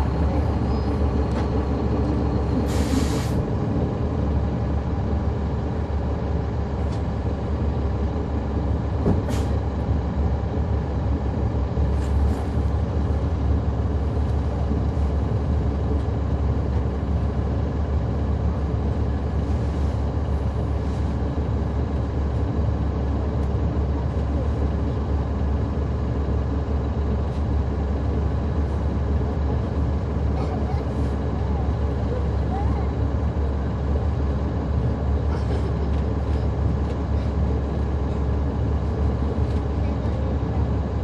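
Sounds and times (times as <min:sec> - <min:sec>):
bus diesel engine running: 0:00.0 - 0:41.0
air brake hiss: 0:02.6 - 0:03.4, 0:09.3 - 0:09.6.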